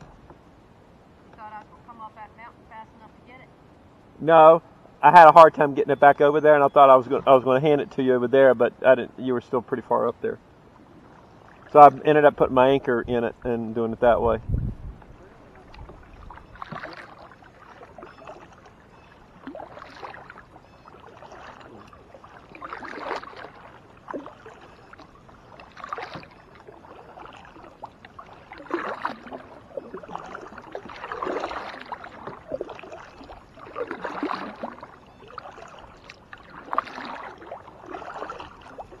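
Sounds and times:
kayak paddle splashing water: 0:10.4 - 0:14.2, 0:14.9 - 0:39.0.

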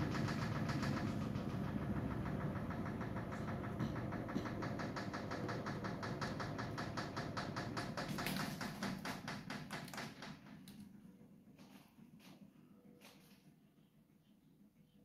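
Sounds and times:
washing machine spinning: 0:00.0 - 0:15.0.

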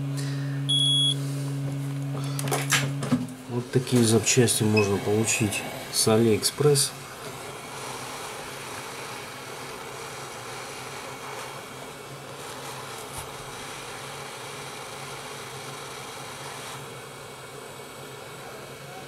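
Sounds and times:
hot air gun blowing: 0:04.7 - 0:17.1.

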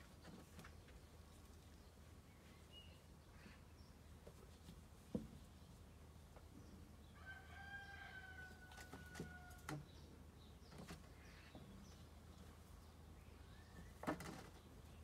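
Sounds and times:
rooster crowing: 0:07.1 - 0:09.7.

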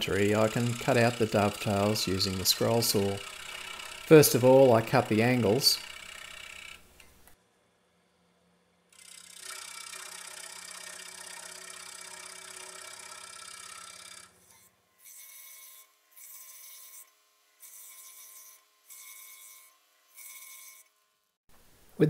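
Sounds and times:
scroll saw cutting wood: 0:00.0 - 0:07.3, 0:08.9 - 0:21.3.

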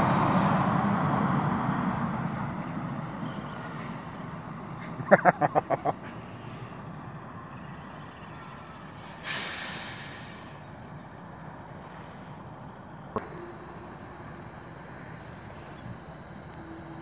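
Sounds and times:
diesel engine running: 0:00.0 - 0:17.0
air hiss: 0:09.0 - 0:10.6.

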